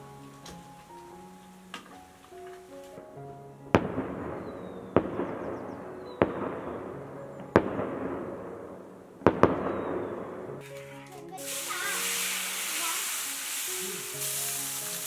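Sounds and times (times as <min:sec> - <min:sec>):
fireworks bangs with crackle: 0:03.7 - 0:08.6, 0:09.2 - 0:15.0.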